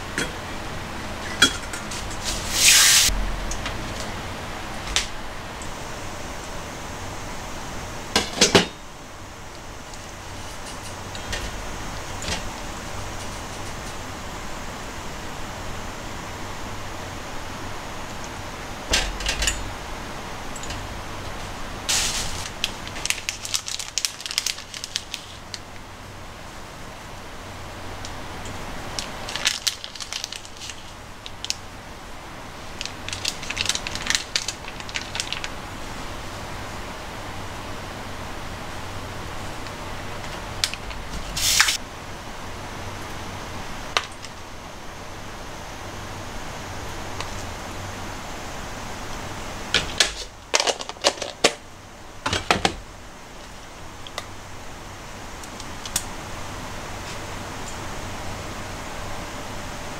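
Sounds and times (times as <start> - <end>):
faint low hum: 3.1 - 50.6
plastic packet crinkling: 21.9 - 25.6, 29.0 - 31.6, 32.6 - 35.6, 50.2 - 51.6.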